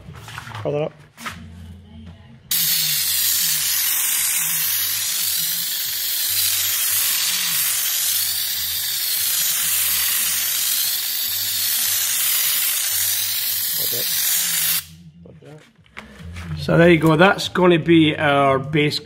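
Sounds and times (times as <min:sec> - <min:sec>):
spray gun hissing: 0:02.5 - 0:14.9.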